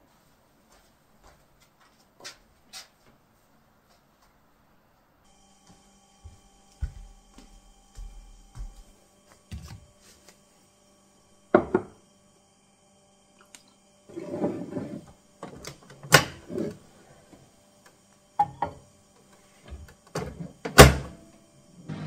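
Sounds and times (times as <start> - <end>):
knocks on microwave: 11.5 - 12.0, 20.7 - 21.2
mug knocking: 11.6 - 12.0.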